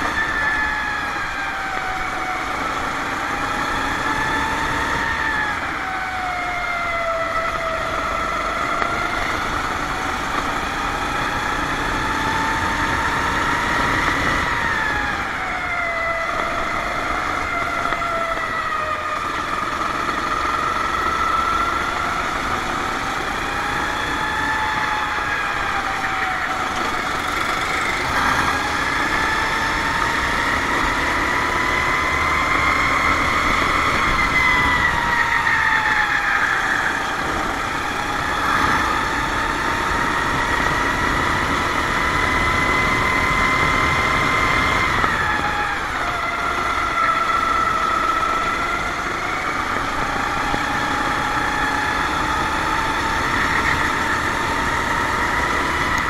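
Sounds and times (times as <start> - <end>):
kart engine racing: 0.0 - 56.0.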